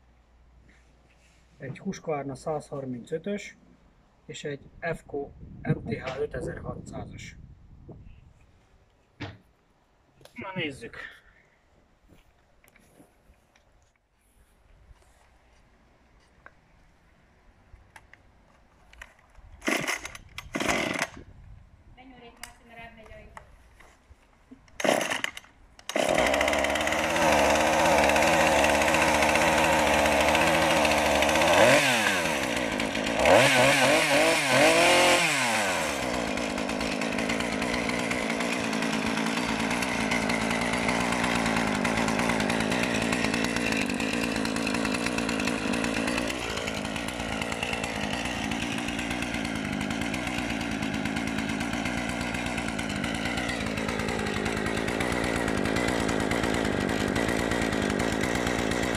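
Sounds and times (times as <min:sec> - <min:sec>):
chainsaw idling: 0:19.6 - 0:21.2, 0:24.8 - 0:58.9
chainsaw starting and revving: 0:19.6 - 0:21.3, 0:24.7 - 0:58.9.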